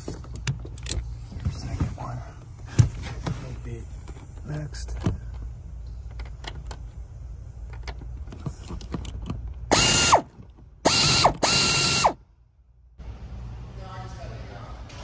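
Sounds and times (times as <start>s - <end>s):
ratchet clicking: 8.8s - 10.3s, 10.9s - 12.2s
cordless power tool whining: 9.7s - 12.2s.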